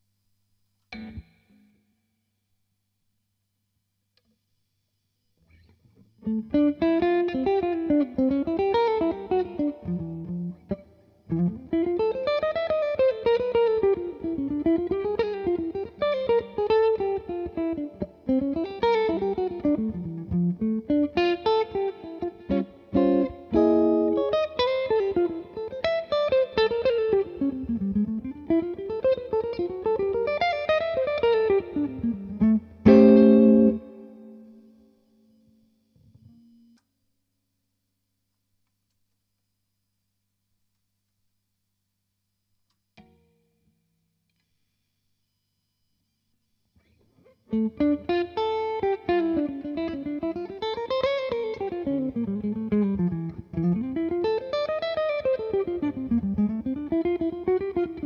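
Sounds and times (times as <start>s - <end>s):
electric guitar through an amp: 0.9s - 1.8s, 5.4s - 36.8s, 46.8s - 58.0s.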